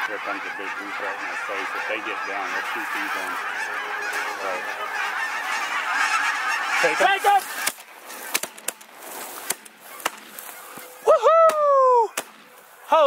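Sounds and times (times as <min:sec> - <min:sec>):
geese honking: 0:00.0 - 0:13.0
person shouting: 0:11.1 - 0:12.2.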